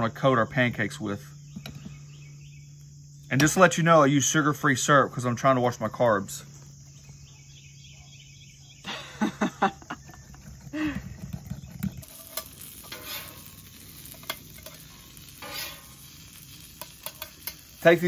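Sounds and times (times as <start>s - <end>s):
metal spoon scraping glass bowl: 11.5s - 13.4s, 15.4s - 15.9s.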